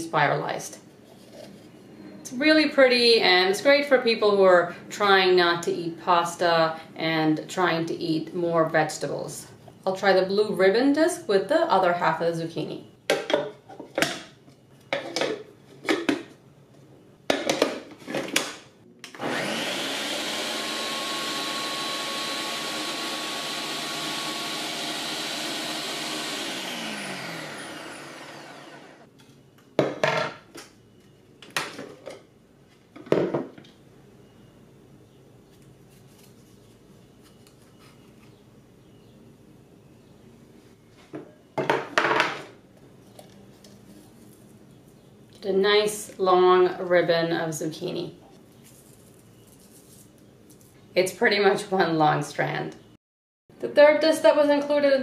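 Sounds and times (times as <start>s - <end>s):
food processor motor running: 19.2s - 29.1s.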